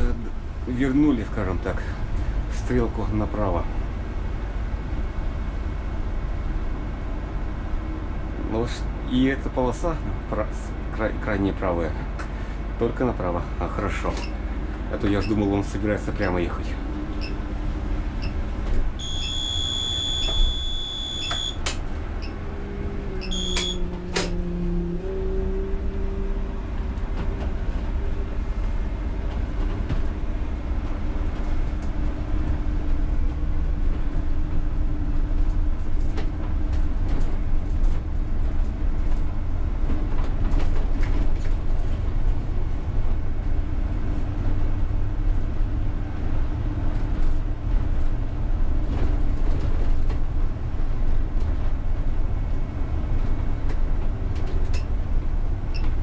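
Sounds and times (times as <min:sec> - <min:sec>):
high electronic beep: 0:19.0 - 0:21.6, 0:23.2 - 0:23.8
low rumble of running gear: 0:21.8 - 0:56.0.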